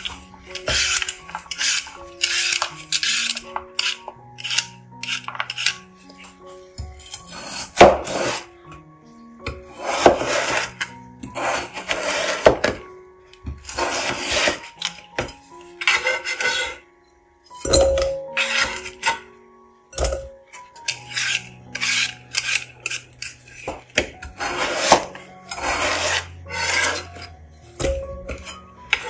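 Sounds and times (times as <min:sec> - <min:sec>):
knife slicing potatoes: 0:00.0 - 0:05.8, 0:06.9 - 0:08.5, 0:13.6 - 0:16.8, 0:20.8 - 0:29.0.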